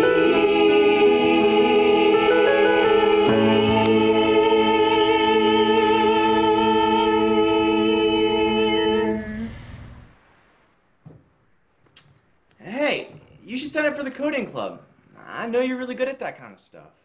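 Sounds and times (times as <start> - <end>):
young voices singing a chord: 0.0 - 9.6.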